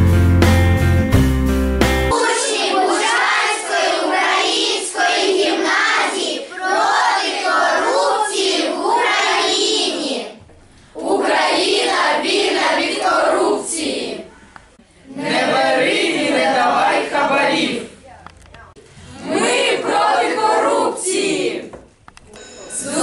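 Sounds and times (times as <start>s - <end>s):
children singing in unison: 2.1s - 10.4s, 11.0s - 14.3s, 19.2s - 21.7s.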